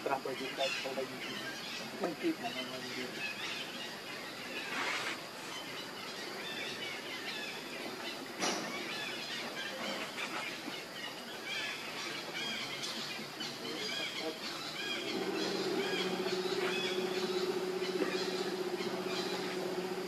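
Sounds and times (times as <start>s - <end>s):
bird chirps: 0.0s - 20.0s
steady forest hiss: 0.0s - 20.0s
sharp rustle: 4.6s - 5.6s.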